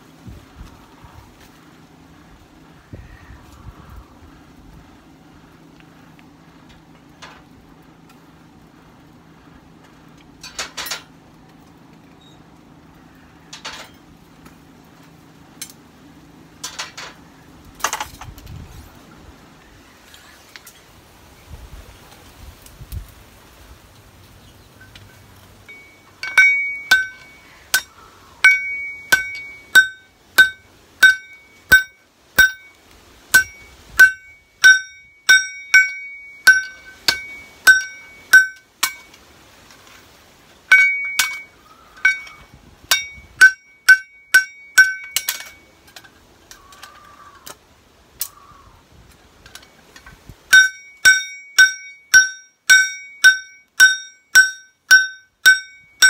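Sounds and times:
hammer ringing on anvil: 25.7s - 39.1s, 40.7s - 45.7s, 50.5s - 56.0s.

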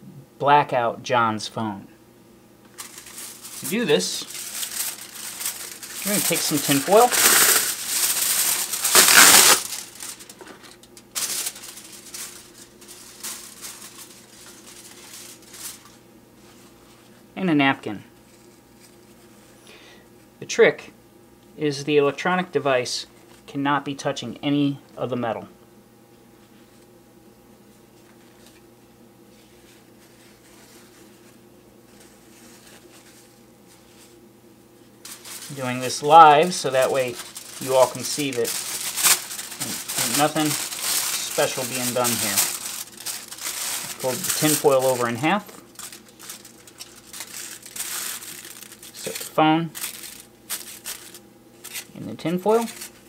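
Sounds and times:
steady low hum: 0.0s - 53.0s
aluminium foil crinkling: 2.6s - 17.0s, 29.3s - 34.2s, 35.0s - 53.0s
rustling and crinkling: 2.6s - 17.2s, 18.2s - 19.6s, 27.7s - 34.2s, 34.8s - 53.0s.

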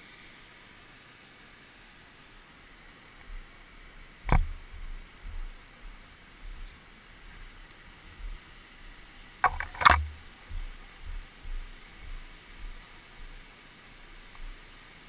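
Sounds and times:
sharp knocks: 4.3s - 4.6s.

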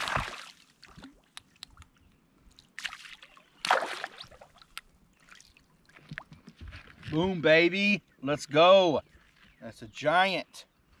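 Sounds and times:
fish splashing at water surface: 0.0s - 1.2s, 2.8s - 4.7s.

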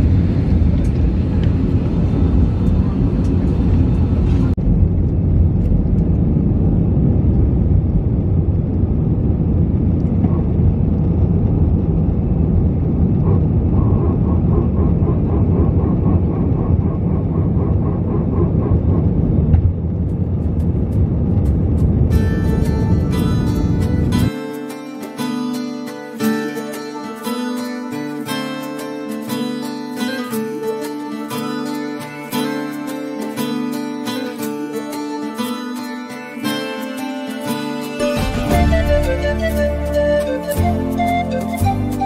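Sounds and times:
jet engines rumbling in cabin: 0.0s - 24.3s.

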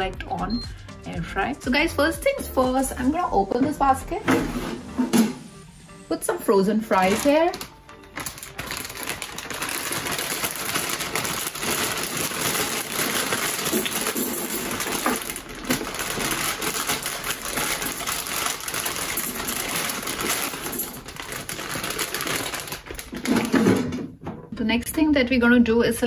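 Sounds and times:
plastic bag crinkling: 6.8s - 23.9s
fries clattering into plastic basket: 6.9s - 24.3s.

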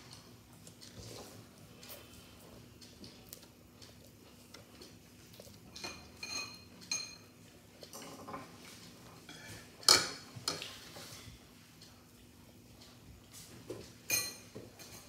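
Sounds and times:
cutlery clatter: 5.7s - 7.3s, 7.9s - 8.6s, 9.3s - 10.7s, 14.1s - 15.0s
cutlery clinking on ceramic plate: 5.7s - 7.3s, 14.1s - 15.0s.

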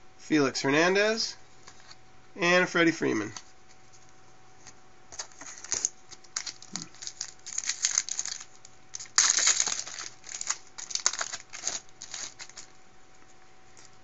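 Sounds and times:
foil wrapper crinkling: 5.1s - 12.8s.

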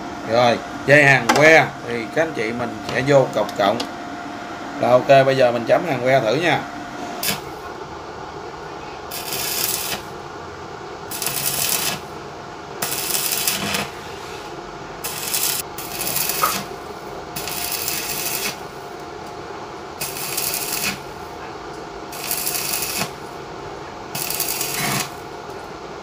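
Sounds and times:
steady hum: 0.0s - 26.0s
welding arc crackling: 7.2s - 7.6s, 9.1s - 10.2s, 11.1s - 12.2s, 12.8s - 14.0s, 15.0s - 19.1s, 19.9s - 21.3s, 22.1s - 23.4s, 24.1s - 25.6s.

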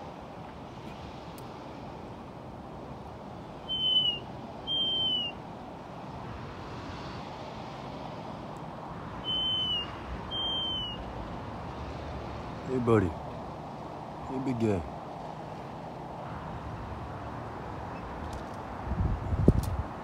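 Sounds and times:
steady background hiss: 0.0s - 20.0s
hawk whistled calls: 3.6s - 5.4s, 9.2s - 11.1s.

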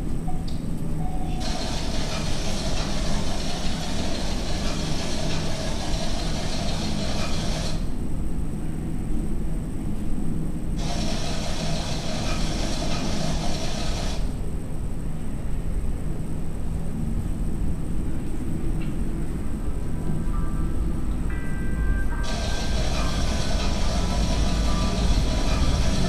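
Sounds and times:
low engine rumble: 22.2s - 26.0s.

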